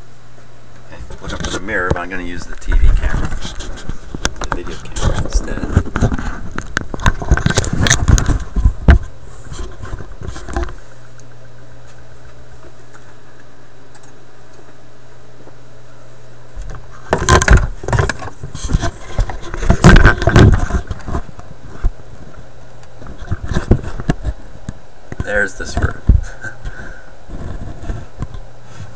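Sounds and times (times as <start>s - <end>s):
low hum: 0.0s - 28.9s
camera handling knocks and rubbing: 17.1s - 22.0s.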